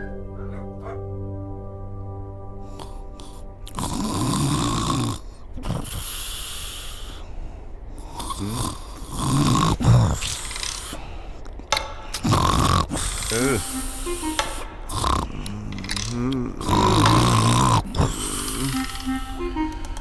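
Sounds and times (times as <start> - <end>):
soft music with held notes: 0.0 - 5.0, 13.3 - 16.0, 18.2 - 20.0
man snoring heavily: 3.7 - 7.2, 8.0 - 10.5, 12.2 - 13.6, 14.9 - 18.8.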